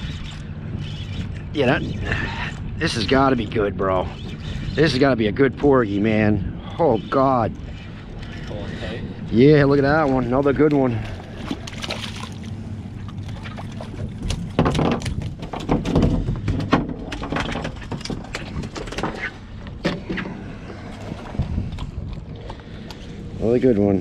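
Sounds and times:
water splashing: 10.0s - 15.3s.

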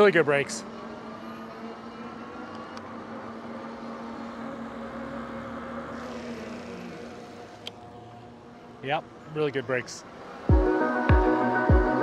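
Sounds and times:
electric bike motor whining: 0.0s - 8.6s.

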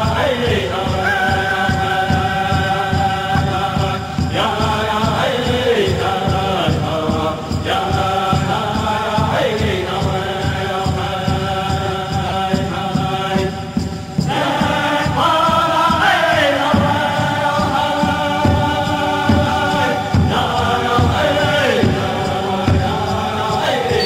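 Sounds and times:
group of voices chanting: 0.0s - 24.0s
steady drum beat: 0.0s - 24.0s.

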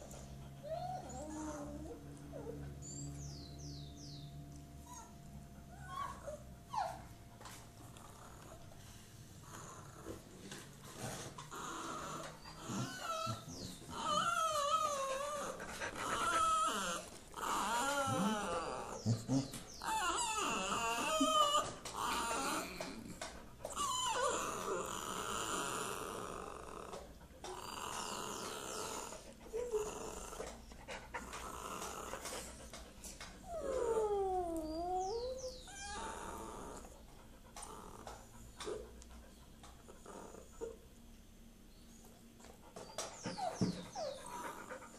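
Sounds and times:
dog whining: 0.0s - 4.2s, 4.8s - 8.7s, 9.4s - 10.2s, 11.4s - 40.9s, 42.8s - 44.9s
dog grumbling: 9.4s - 10.3s, 10.9s - 32.8s, 33.4s - 38.9s, 39.8s - 40.8s, 43.2s - 44.9s.

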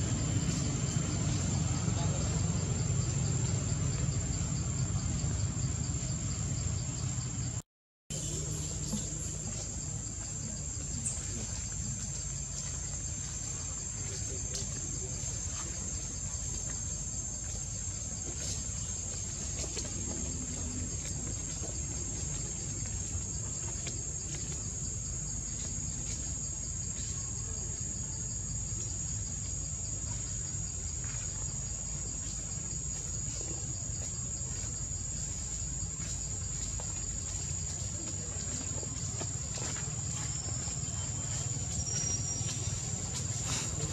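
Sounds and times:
high-pitched insect drone: 0.0s - 19.6s.

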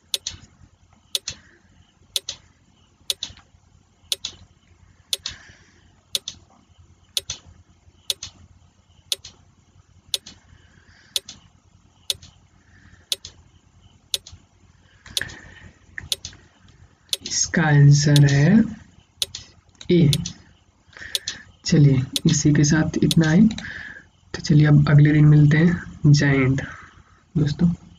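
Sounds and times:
countdown timer ticking: 0.0s - 0.2s, 22.2s - 22.4s.

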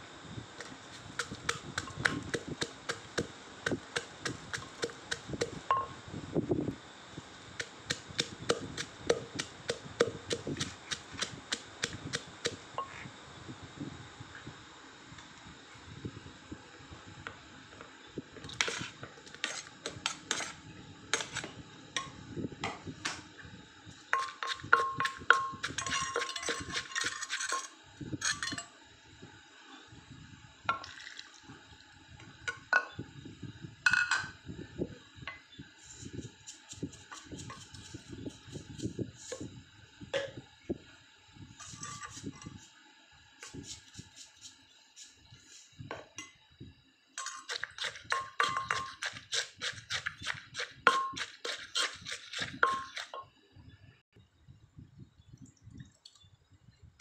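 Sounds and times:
pestle pounding in clay mortar: 1.0s - 5.6s, 7.6s - 12.6s, 24.2s - 27.4s, 47.2s - 53.1s.

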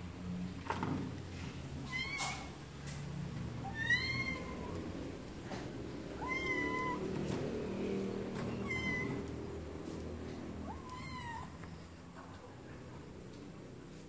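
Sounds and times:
kitten meowing: 1.9s - 2.5s, 3.6s - 4.8s, 6.2s - 7.1s, 8.5s - 9.3s, 10.6s - 11.6s.

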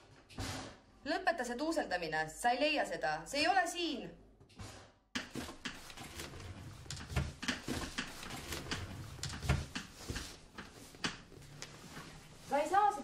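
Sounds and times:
cabinet doors and drawers bumping: 4.6s - 11.3s.

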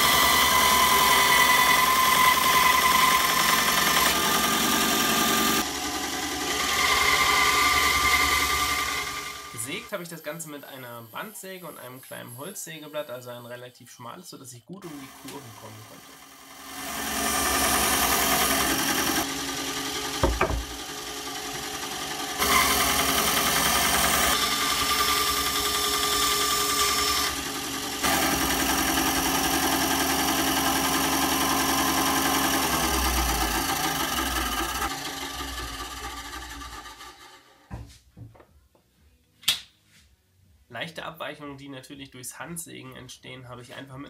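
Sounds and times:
bandsaw cutting plywood: 0.0s - 12.8s, 14.8s - 37.7s
sharp knock: 20.2s - 20.8s.

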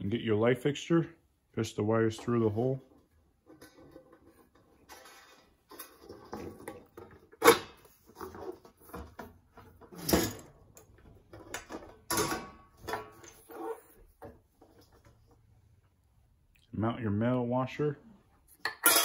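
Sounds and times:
sheet metal rustling and scraping: 2.2s - 15.5s.

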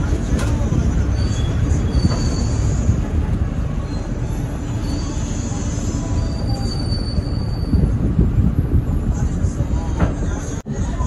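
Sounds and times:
bus engine rumble: 0.0s - 11.0s
road noise: 0.0s - 11.0s.

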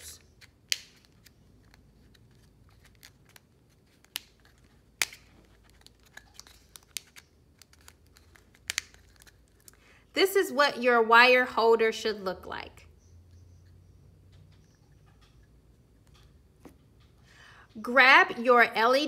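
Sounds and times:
plastic strip crinkling: 0.0s - 9.9s
sharp plastic clicks: 0.4s - 9.8s.

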